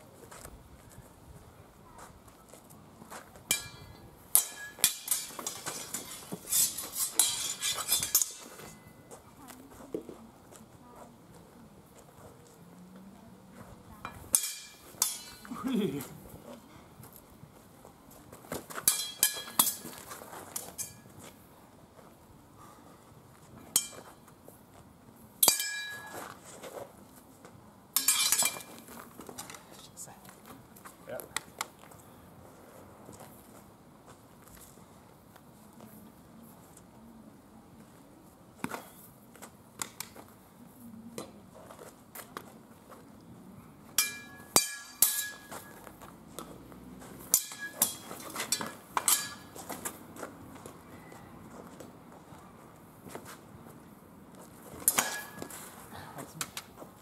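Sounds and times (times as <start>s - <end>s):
swords and bucklers clanging: 3.5s - 9.1s, 14.1s - 15.7s, 18.8s - 21.2s, 23.6s - 24.2s, 25.4s - 26.5s, 28.0s - 29.6s, 43.9s - 45.9s, 47.0s - 50.0s, 54.8s - 55.8s.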